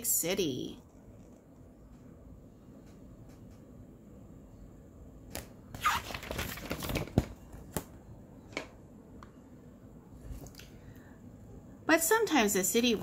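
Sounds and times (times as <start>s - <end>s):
paper page rustling: 5.3s - 7.9s.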